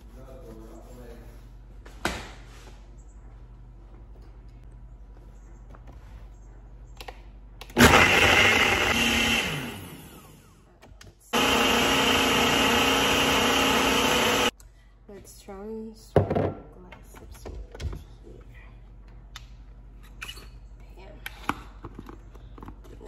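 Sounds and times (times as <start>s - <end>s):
blender blending: 7.8s - 10.6s, 11.3s - 14.5s.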